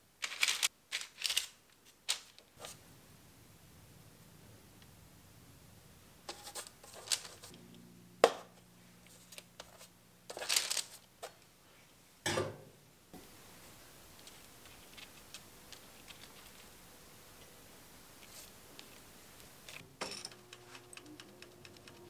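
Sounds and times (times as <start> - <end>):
baking paper crinkling: 0.2 - 2.8, 6.3 - 7.5, 9.1 - 11.4, 14.1 - 16.8.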